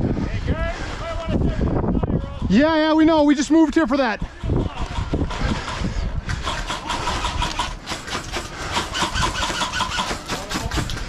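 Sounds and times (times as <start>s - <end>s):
airsoft guns firing full auto: 4.8s - 11.0s.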